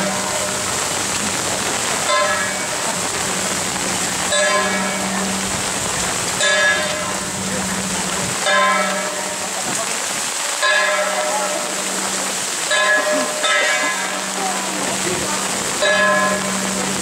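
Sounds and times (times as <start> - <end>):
heavy rain: 0.0 - 17.0
bell ringing: 12.7 - 14.3.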